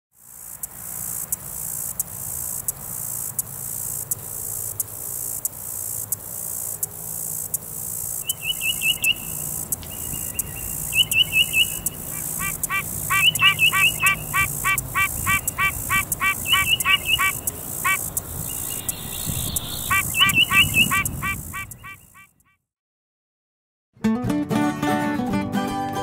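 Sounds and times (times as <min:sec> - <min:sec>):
pulsing insect chorus: 0:00.2 - 0:22.3
bird chirping: 0:08.0 - 0:22.4.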